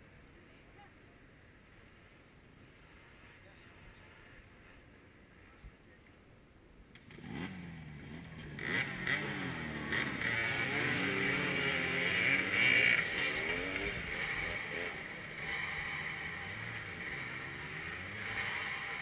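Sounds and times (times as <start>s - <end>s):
dirt bike engines revving hard: 7.0s - 19.0s.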